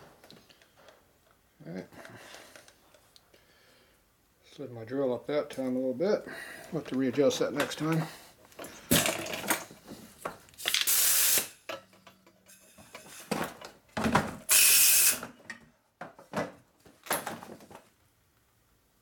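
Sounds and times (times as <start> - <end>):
knocks and handling sounds: 6.6 - 10.9, 11.7 - 14.4, 15.4 - 18.0
compressed air blasts: 10.6 - 11.6, 14.4 - 15.3.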